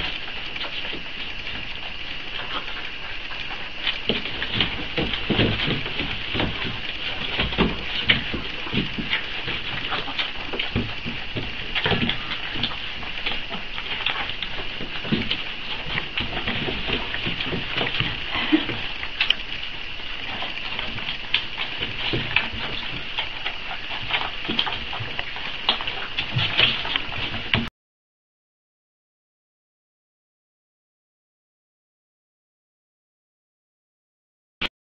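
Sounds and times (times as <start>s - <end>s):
puppies suckling: 0.0s - 27.7s.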